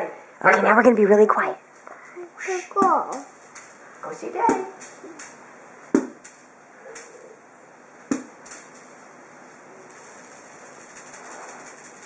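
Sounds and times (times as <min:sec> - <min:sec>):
sharp knock: 0:06.0 - 0:06.2, 0:08.1 - 0:08.4.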